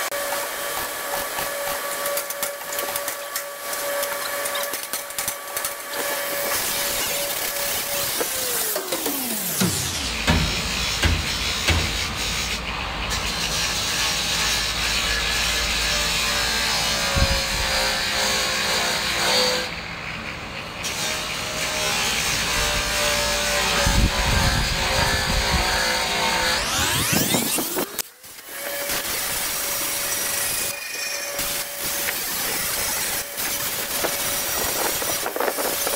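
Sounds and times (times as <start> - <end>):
angle grinder grinding metal: 0.0 - 19.7, 20.9 - 35.9.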